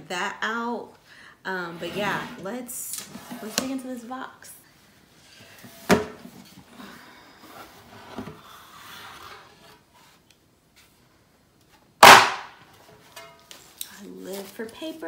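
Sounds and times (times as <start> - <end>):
box lid rubbing and sliding: 1.7 - 2.5, 6.6 - 10.2.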